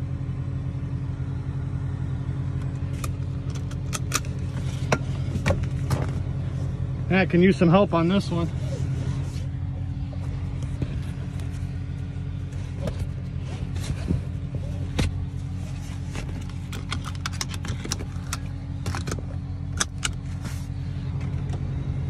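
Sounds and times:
car engine idling: 0.0s - 22.0s
strap clicking and rattling: 16.1s - 20.3s.

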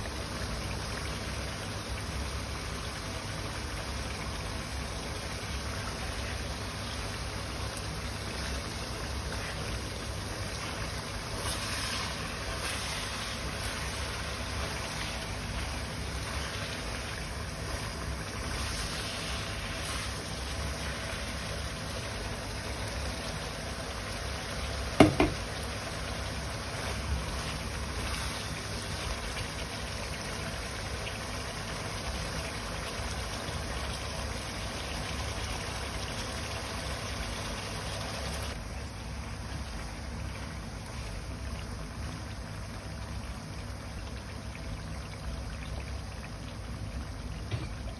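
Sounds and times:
stew bubbling in a frying pan: 0.0s - 47.9s
spatula knocking against pan: 25.0s - 25.4s.

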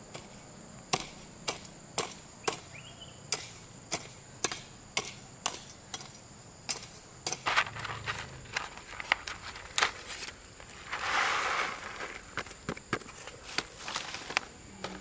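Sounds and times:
chopping blows sharp knocks: 0.9s - 2.7s, 3.3s - 6.1s.

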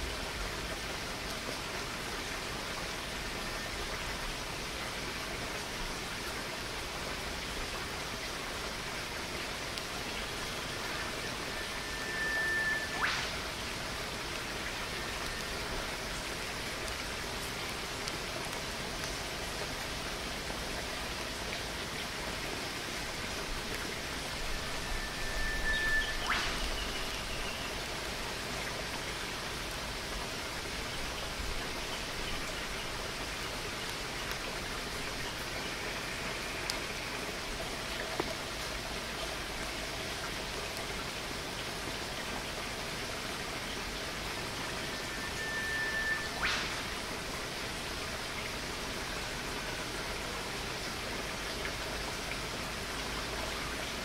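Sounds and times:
faint high whistling note: 10.5s - 13.6s, 24.2s - 27.8s, 44.7s - 47.0s
faint ticks: 15.1s - 19.2s
waterfall rushing: 21.6s - 31.9s.

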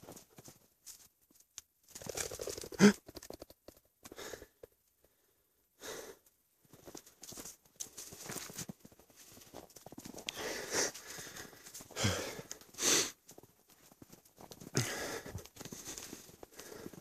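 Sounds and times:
breathing: 4.1s - 6.3s, 10.3s - 13.2s, 14.7s - 17.0s
footsteps crunching in snow: 6.7s - 14.7s.

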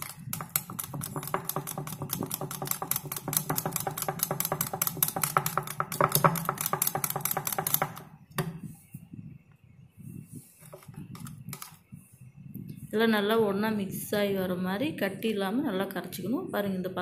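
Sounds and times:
whisk clicking against bowl: 0.0s - 8.1s.

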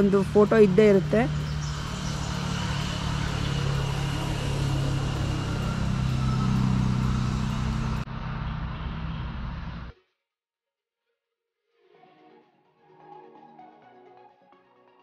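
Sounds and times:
vehicle engine humming: 0.0s - 9.9s.

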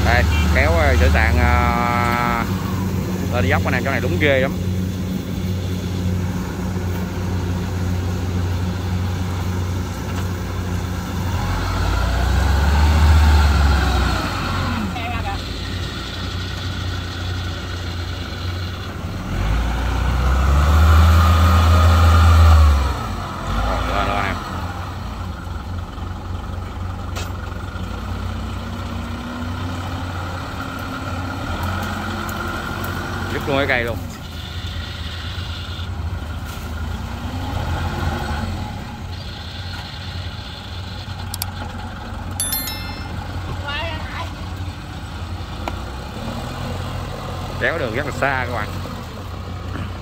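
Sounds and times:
cart engine humming: 0.0s - 12.8s, 38.9s - 50.0s.

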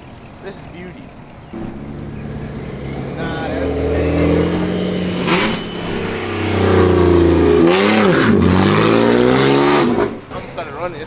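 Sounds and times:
car engine revving: 1.6s - 10.3s.

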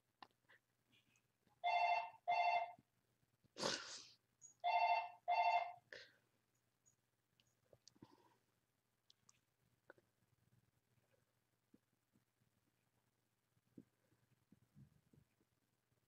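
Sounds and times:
telephone ringing: 1.6s - 2.8s, 4.6s - 5.8s.

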